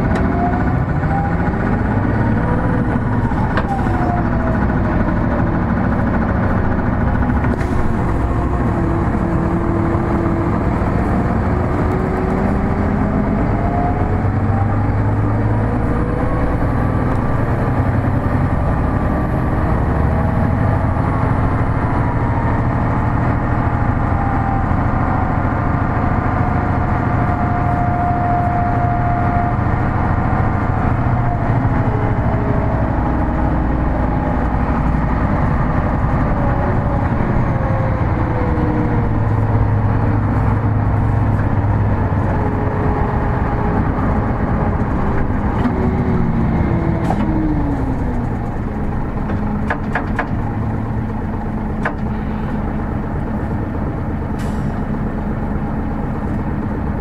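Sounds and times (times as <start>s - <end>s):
bus engine rumble: 0.0s - 57.0s
road noise: 0.0s - 57.0s.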